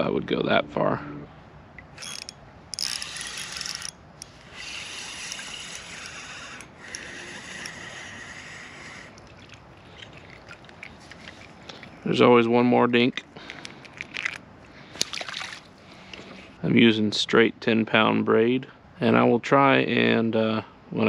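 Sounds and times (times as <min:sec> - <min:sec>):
fishing reel gears whirring: 0:01.8 - 0:12.2
fishing reel rasp: 0:01.9 - 0:12.2.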